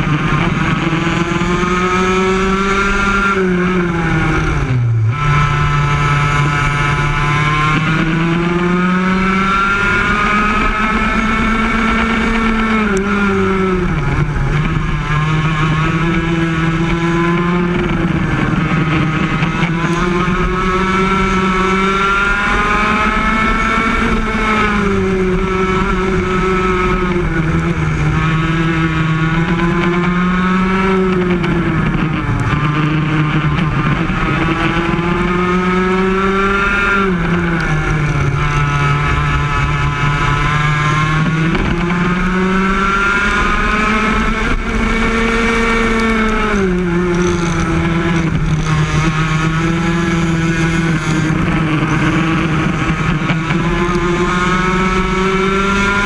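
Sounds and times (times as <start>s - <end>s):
two-stroke kart engine racing: 0.0s - 56.0s.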